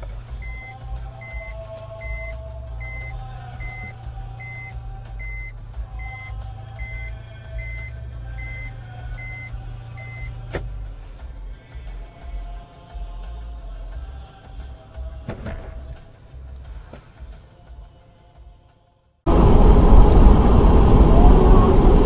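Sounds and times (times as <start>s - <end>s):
engine humming: 0.0s - 17.6s, 19.3s - 22.0s
vehicle warning beeper: 0.4s - 10.5s.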